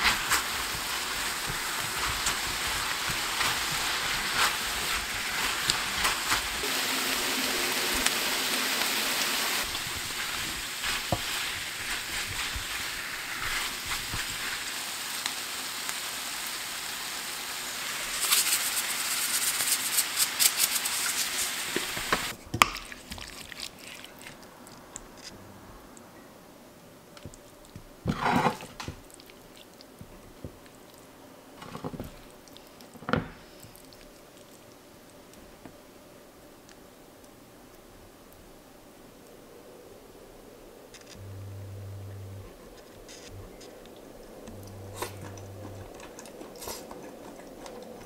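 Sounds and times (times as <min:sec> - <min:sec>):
food sizzling in butter: 0:00.0 - 0:22.3.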